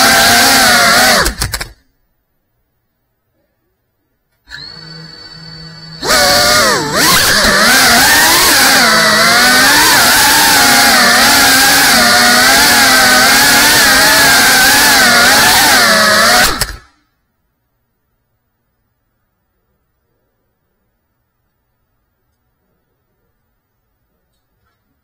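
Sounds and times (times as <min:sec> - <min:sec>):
drone propellers buzzing: 0:04.5 - 0:16.9.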